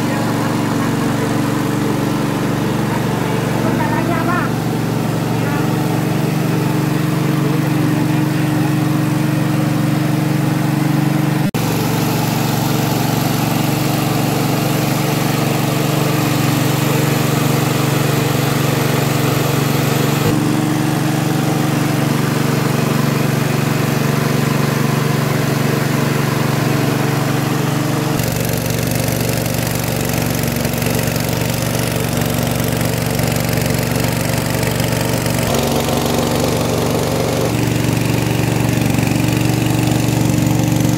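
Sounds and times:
rice milling machine motor drone: 0.0 - 40.9.

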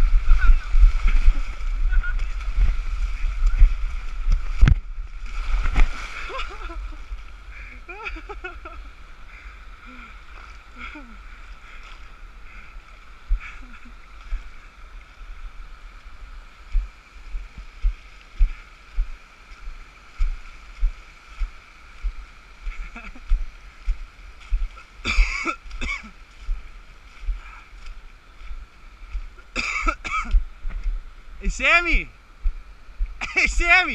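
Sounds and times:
water rushing over rock: 0.0 - 7.5.

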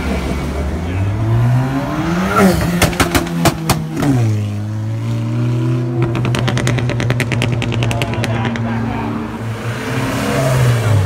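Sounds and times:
sharp exhaust pops: 2.7 - 4.1, 5.9 - 8.9.

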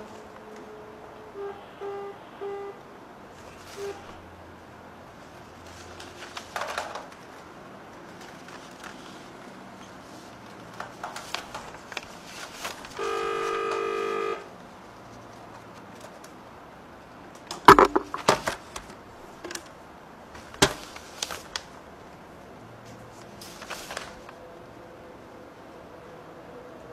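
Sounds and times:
clicks and sharp knocks: 17.5 - 19.7.

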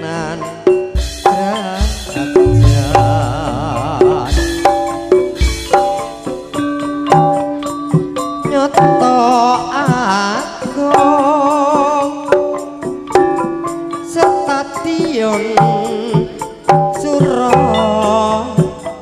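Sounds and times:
person singing with vibrato: 1.5 - 5.0
hand drum strikes: 2.3 - 6.0
held melodic tones: 2.4 - 5.0.

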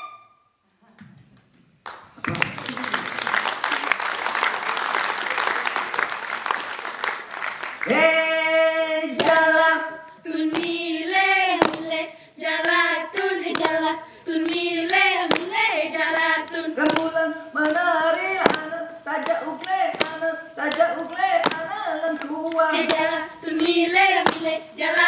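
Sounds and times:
audience applause: 1.8 - 8.1
dancers chanting in unison: 7.8 - 25.0
sharp hand claps and slaps: 9.2 - 9.5, 10.5 - 12.0, 12.6 - 13.8, 14.4 - 25.0.

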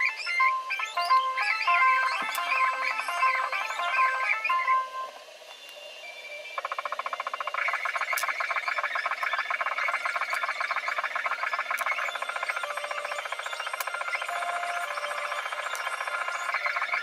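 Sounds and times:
pulsed buzzing trill music: 0.0 - 5.2, 6.7 - 17.0
sharp clicks: 11.5 - 16.3.

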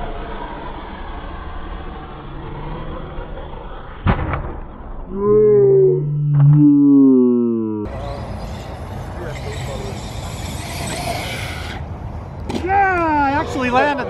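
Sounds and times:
downward sliding pitched sound: 0.1 - 8.2.

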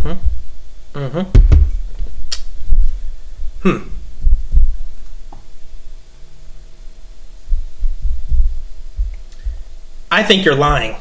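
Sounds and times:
faint steady hum: 0.0 - 11.0
deep throbbing rumble: 7.4 - 9.7.

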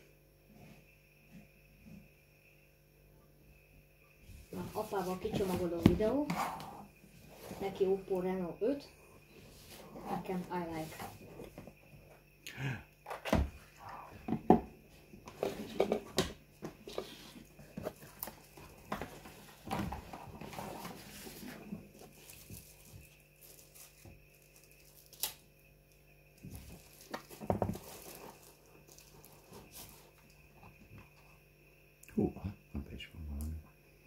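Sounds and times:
handling a cardboard box: 14.4 - 24.2, 26.4 - 30.9.

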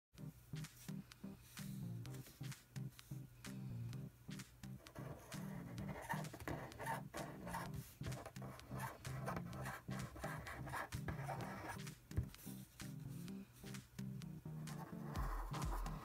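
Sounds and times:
faint background music: 0.2 - 16.0
marker squeaking on paper: 4.9 - 11.8.

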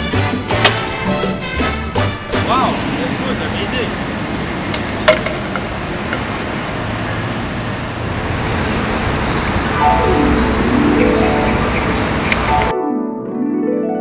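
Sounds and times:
road traffic: 0.0 - 12.7
music with descending notes: 9.8 - 14.0.

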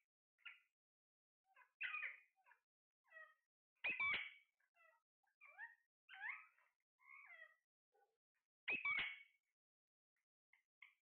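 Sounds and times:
parrot squawk: 1.6 - 7.6, 8.7 - 9.3
parrot chirps and whistles: 1.8 - 2.2, 3.8 - 4.4, 8.7 - 9.3.

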